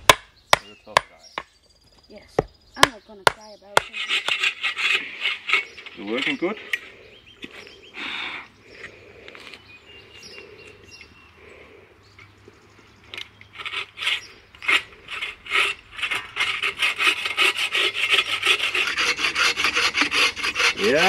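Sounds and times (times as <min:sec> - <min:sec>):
saw rasping through log: 0:02.8 - 0:06.8, 0:13.5 - 0:21.0.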